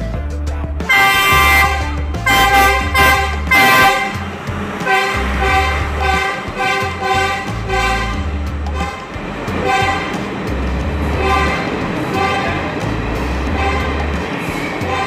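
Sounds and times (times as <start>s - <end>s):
diesel engine drone: 0.0s - 15.0s
train horn blasts: 0.9s - 10.3s, 11.1s - 12.8s, 13.5s - 14.1s, 14.8s - 15.0s.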